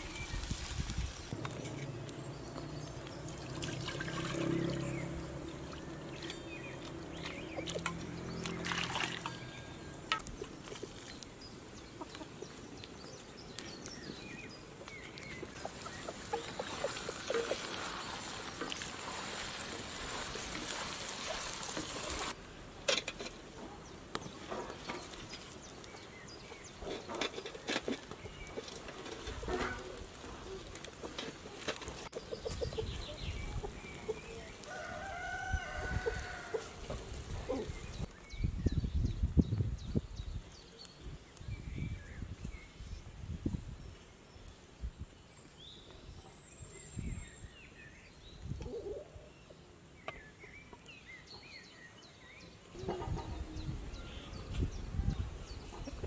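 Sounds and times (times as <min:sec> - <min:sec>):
liquid being poured: 0:03.3 - 0:06.9
chickens clucking: 0:11.8 - 0:12.6, 0:14.7 - 0:18.4, 0:26.8 - 0:34.7, 0:52.7 - 0:53.8, 0:55.6 - 0:56.0.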